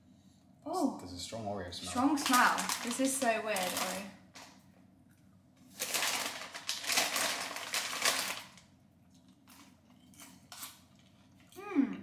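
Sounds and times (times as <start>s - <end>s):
popcorn crunching: 1.8s - 4.6s, 5.6s - 11.6s
popcorn packet crackling: 1.9s - 4.5s, 5.6s - 8.8s.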